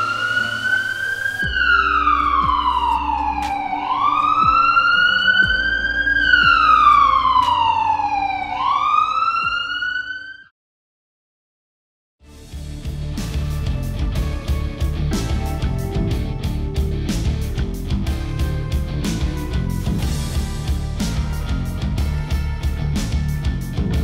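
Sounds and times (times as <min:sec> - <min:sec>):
wailing siren: 0:00.0 - 0:10.5.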